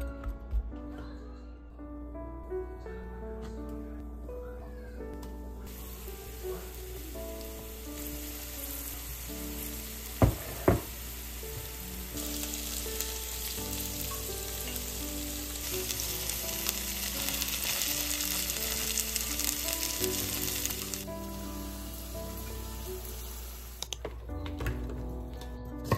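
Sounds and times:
food sizzling in oil: 5.7 - 24.0.

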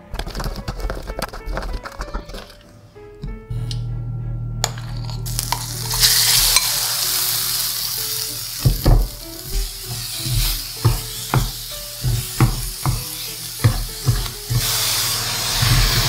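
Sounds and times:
spatula scraping and knocking pan: 0.2 - 2.6, 8.6 - 16.0
meat sizzling in a frying pan: 5.3 - 16.0.

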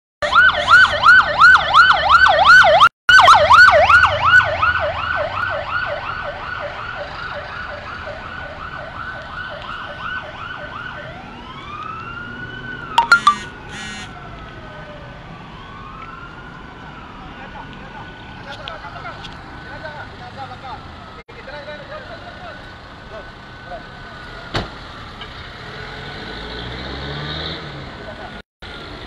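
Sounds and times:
siren fast yelp: 0.2 - 7.1, 12.8 - 14.2
siren slow wail: 0.2 - 18.2
short sharp siren blips: 13.0 - 14.1.

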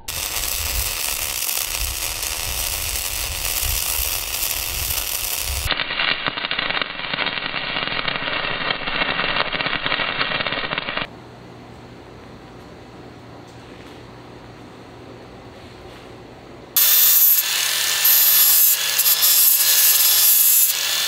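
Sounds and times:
welding arc crackling: 0.0 - 11.1, 16.8 - 21.0.

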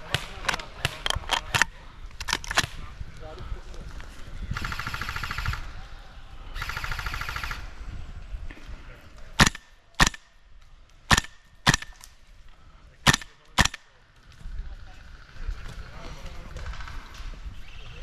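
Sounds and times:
airsoft guns firing: 0.0 - 1.7, 9.4 - 10.4, 11.1 - 12.0, 13.0 - 13.9.

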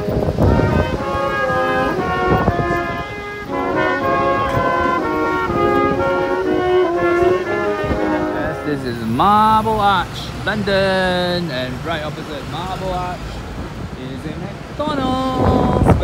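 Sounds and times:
brass ensemble playing chords: 0.0 - 9.8
city traffic rumble: 0.0 - 16.0.

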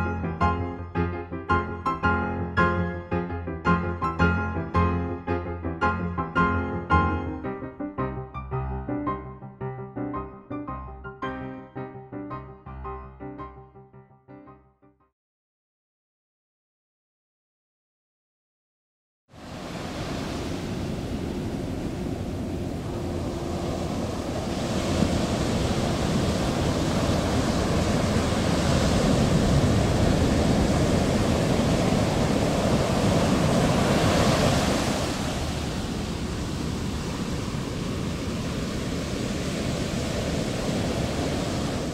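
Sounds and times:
sea surf washing over rocks: 19.4 - 41.9.

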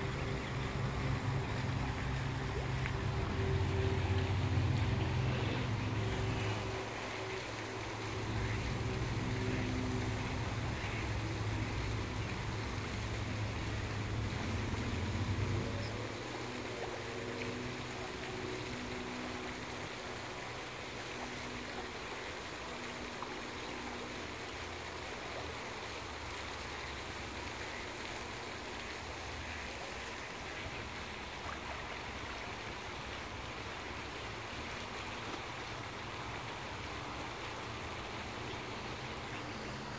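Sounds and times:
distant motor drone: 0.0 - 39.9
outdoor background hiss: 0.0 - 39.9.

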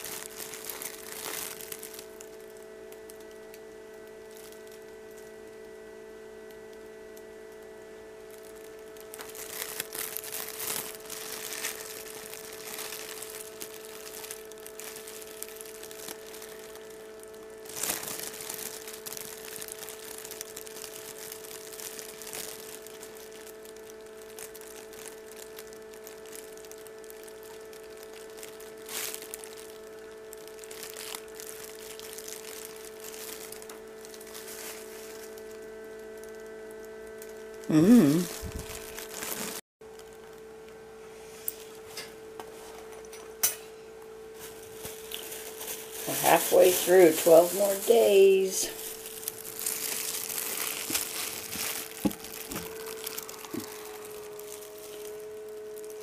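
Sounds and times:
egg handling rustling: 0.0 - 2.2, 8.9 - 35.7, 38.1 - 40.4, 44.3 - 56.0
steady electrical hum: 0.0 - 56.0.

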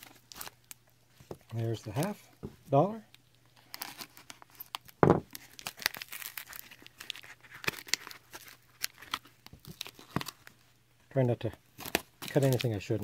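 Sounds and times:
packing tape and plastic tearing: 0.0 - 0.8, 3.6 - 10.5, 11.8 - 12.8.

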